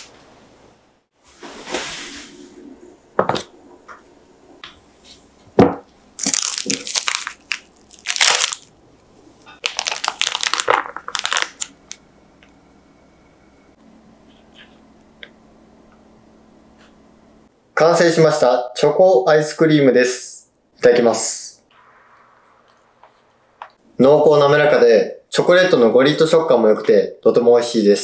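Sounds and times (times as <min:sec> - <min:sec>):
plastic bag crinkling: 0:06.2 - 0:08.8, 0:09.5 - 0:12.0.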